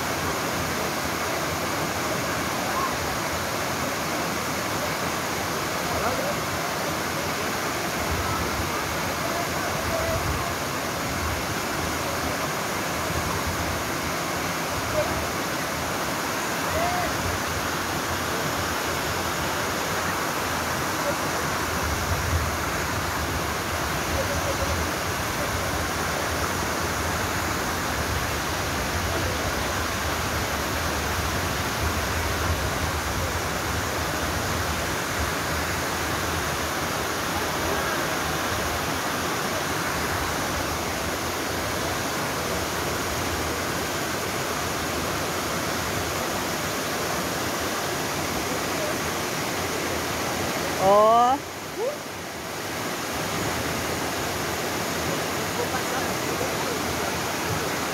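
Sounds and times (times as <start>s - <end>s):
small waterfall rushing: 0.0s - 57.9s.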